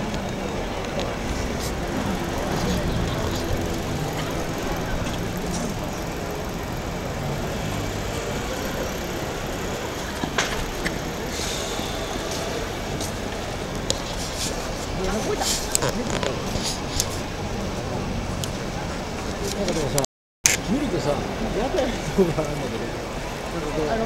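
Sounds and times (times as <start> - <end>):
distant voices: 0.0 - 20.0
road traffic: 0.0 - 24.0.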